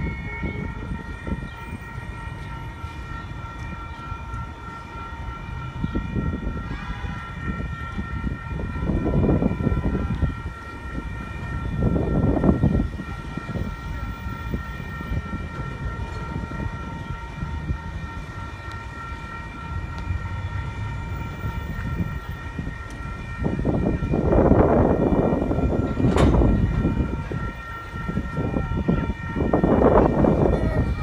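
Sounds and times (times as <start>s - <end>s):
train wheels rumbling on rails: 0.6s - 31.0s
train clatter: 25.3s - 27.4s.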